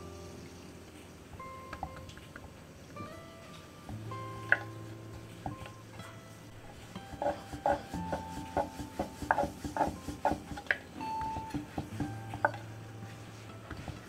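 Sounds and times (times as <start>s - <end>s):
rolling pin knocking on wooden board: 7.1s - 12.6s.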